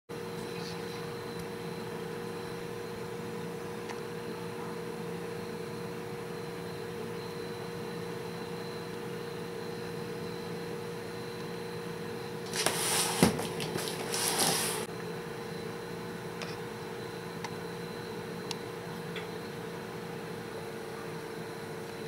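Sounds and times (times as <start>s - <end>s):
low room hum: 0.2s - 22.0s
rustling handling noise: 12.4s - 14.9s.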